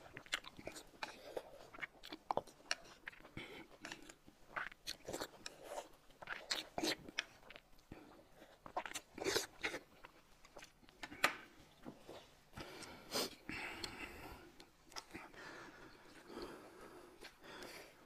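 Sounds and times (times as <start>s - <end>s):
chewing: 0.0s - 17.8s
mouth smacks and clicks: 0.1s - 11.5s, 12.6s - 15.4s.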